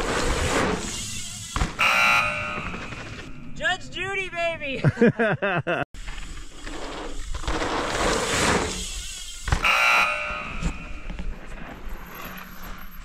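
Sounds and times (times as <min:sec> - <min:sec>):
tyre and wind noise: 0:06.0 - 0:13.0.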